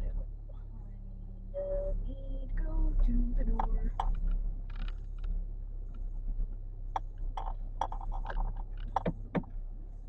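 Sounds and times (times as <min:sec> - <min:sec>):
car driving hum inside cabin: 0:00.0 - 0:10.0
irregular clicks and light knocks: 0:03.5 - 0:09.6.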